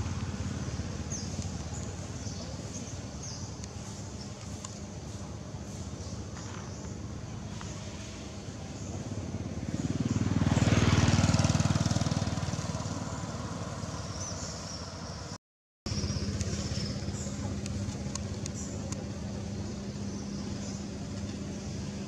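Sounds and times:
motor vehicle passing: 0:07.7 - 0:18.8.

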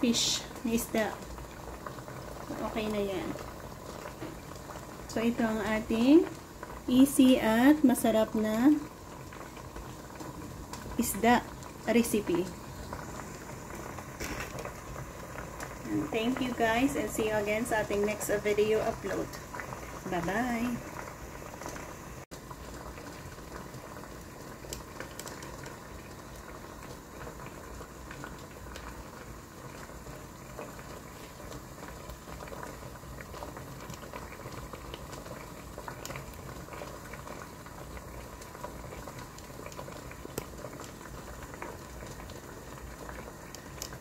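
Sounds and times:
water boiling in a pot: 0:00.0 - 0:44.0.

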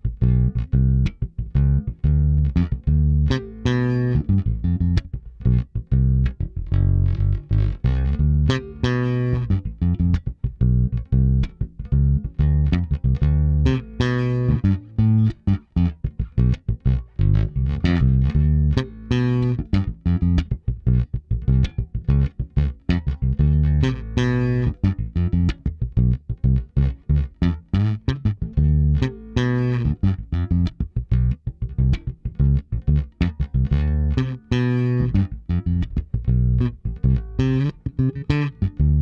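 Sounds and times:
bass guitar plucked low notes: 0:00.0 - 0:39.0.

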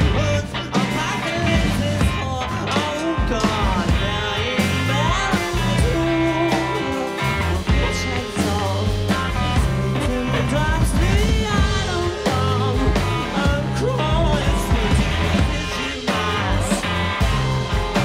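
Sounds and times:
bass line: 0:00.0 - 0:18.0
drums and cymbals: 0:00.0 - 0:18.0
electric guitars: 0:00.0 - 0:18.0
person singing: 0:00.0 - 0:18.0.

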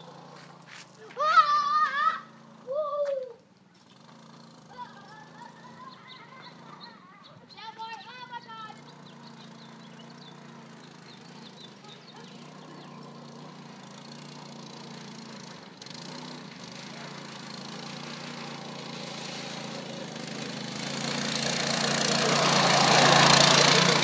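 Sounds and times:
tyres crunching on gravel: 0:00.0 - 0:01.4
go-kart engine running: 0:00.0 - 0:24.0.

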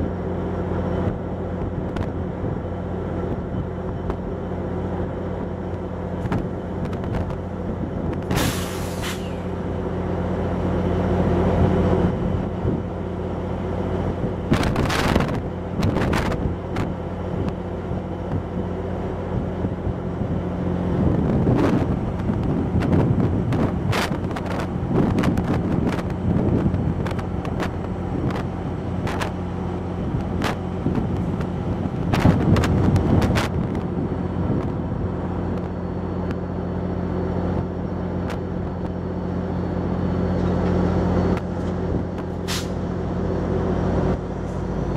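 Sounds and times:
diesel locomotive humming: 0:00.0 - 0:44.9
air hiss blasts: 0:08.3 - 0:09.5.

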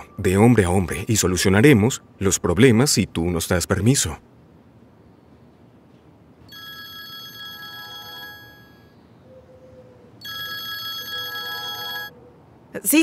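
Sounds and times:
phone ringtone trilling: 0:06.5 - 0:09.0, 0:10.2 - 0:12.2.

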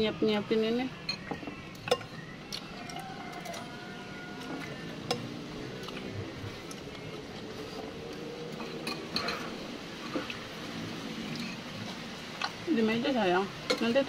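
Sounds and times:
spoons clinking on bowls: 0:01.0 - 0:02.2, 0:08.6 - 0:09.5.

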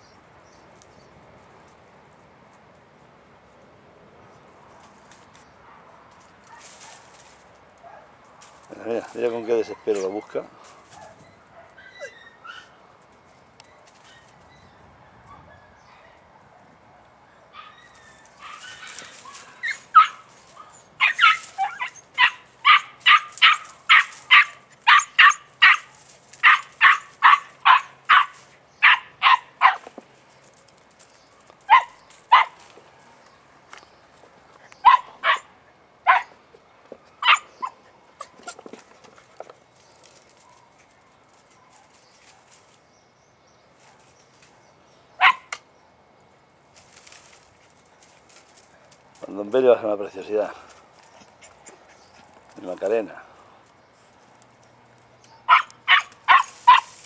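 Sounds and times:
puppy yelping barks: 0:10.9 - 0:12.8, 0:17.3 - 0:29.9, 0:31.7 - 0:32.6, 0:34.8 - 0:36.3, 0:37.2 - 0:38.6, 0:45.2 - 0:45.6, 0:55.3 - 0:57.0.

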